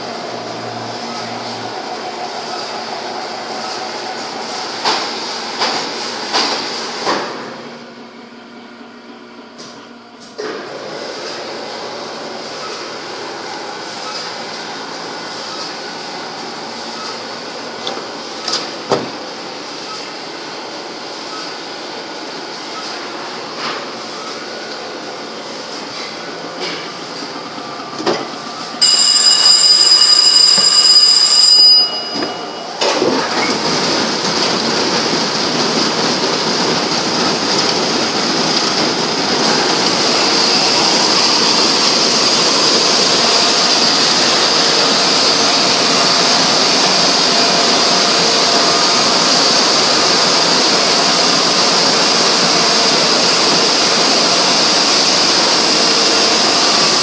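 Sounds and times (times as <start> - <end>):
printing press mechanical whir: 0.0 - 28.8, 32.1 - 57.0
loud high steady tone: 28.8 - 33.7.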